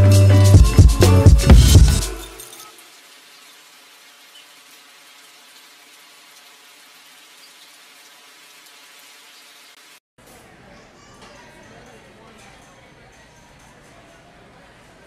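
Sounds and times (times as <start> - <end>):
background music: 0.0 - 2.7
faint steady hiss: 2.1 - 10.0.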